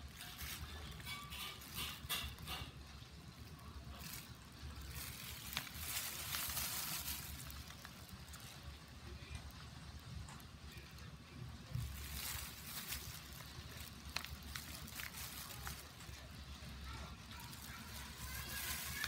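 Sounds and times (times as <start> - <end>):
rustling and crackling handling noise: 0.0 - 19.0.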